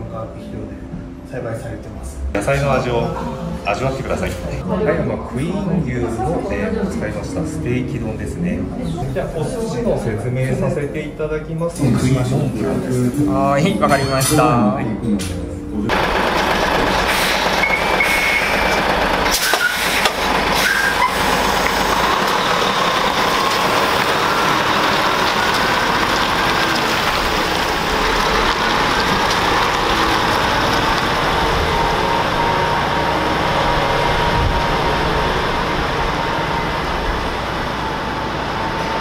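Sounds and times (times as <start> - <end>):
diesel truck engine pulling away: 15.9 - 39.0.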